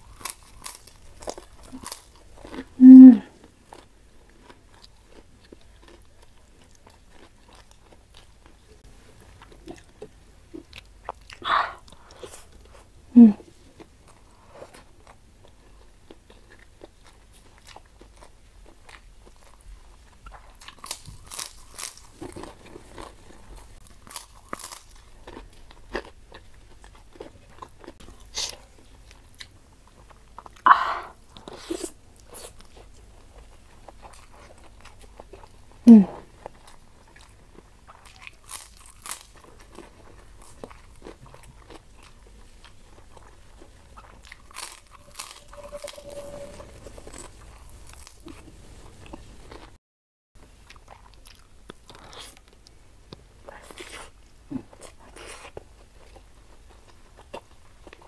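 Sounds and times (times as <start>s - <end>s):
crackers crunching: 0.0s - 2.8s, 3.4s - 12.9s, 13.7s - 30.6s, 36.4s - 49.7s
chewing food: 0.0s - 30.6s, 31.2s - 49.8s, 50.4s - 58.0s.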